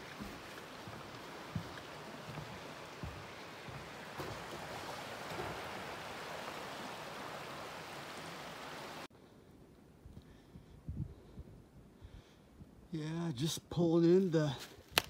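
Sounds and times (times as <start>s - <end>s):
footsteps on wooden boards: 0.0s - 6.5s
creek rushing: 0.0s - 9.1s.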